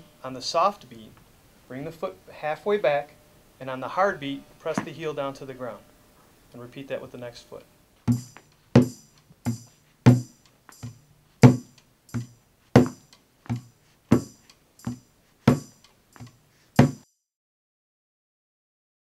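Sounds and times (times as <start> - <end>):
hand drum beating: 8.1 - 17.0.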